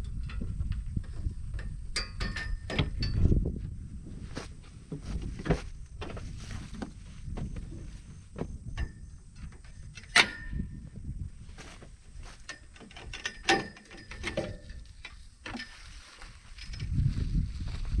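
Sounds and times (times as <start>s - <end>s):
wind rumble on microphone: 0.0s - 18.0s
fishing poles clattering on roof rack: 1.9s - 3.2s, 9.7s - 10.8s, 12.2s - 17.0s
sharp metallic clank: 10.0s - 10.8s.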